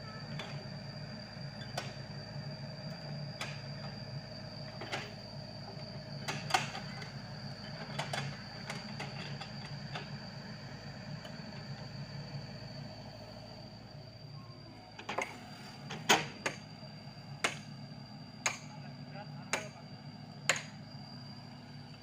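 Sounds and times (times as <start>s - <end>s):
excavator diesel engine: 0.0s - 22.0s.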